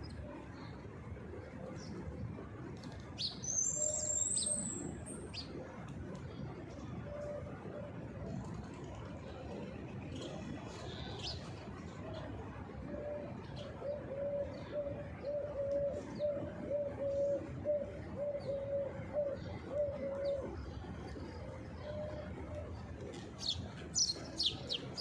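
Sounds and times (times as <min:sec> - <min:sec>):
dove cooing: 0:12.9 - 0:25.0.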